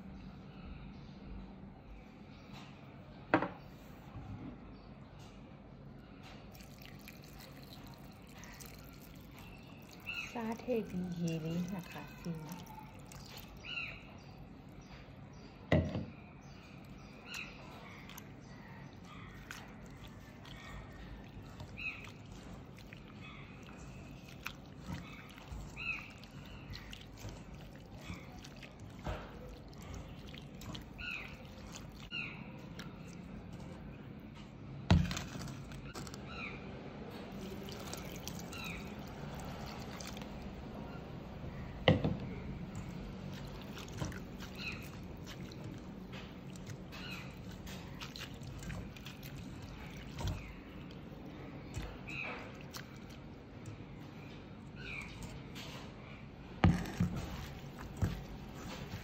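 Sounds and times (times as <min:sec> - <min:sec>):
water pouring into metal bowl: 0:06.6 - 0:13.9, 0:37.4 - 0:40.5.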